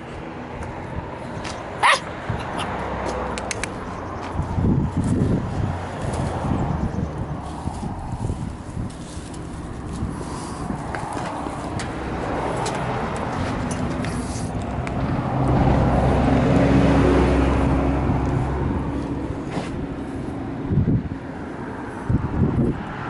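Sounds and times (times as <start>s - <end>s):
car engine and road noise: 0.0s - 23.0s
sharp clicks: 3.2s - 3.9s.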